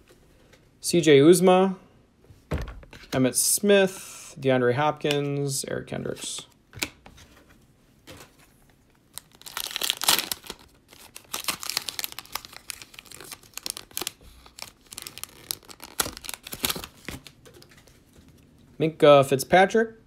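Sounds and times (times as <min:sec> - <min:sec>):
foil wrapper crinkling: 0:09.1 - 0:17.3
foil wrapper tearing: 0:09.2 - 0:17.0.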